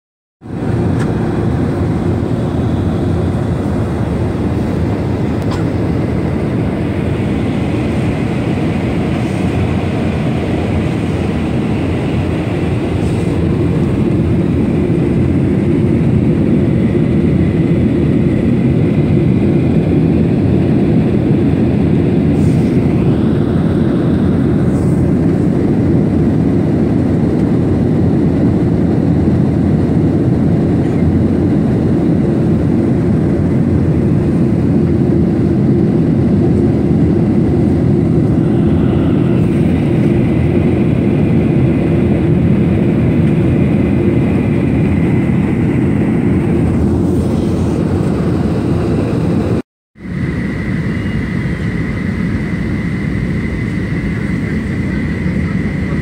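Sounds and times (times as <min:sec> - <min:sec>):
jet engines rumbling: 0:00.4 - 0:56.0
rushing air: 0:00.4 - 0:56.0
faint high whine: 0:50.0 - 0:56.0.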